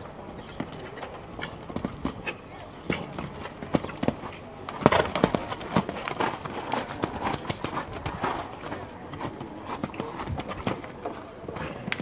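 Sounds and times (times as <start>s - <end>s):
horse hoofbeats on sand: 1.4s - 11.9s.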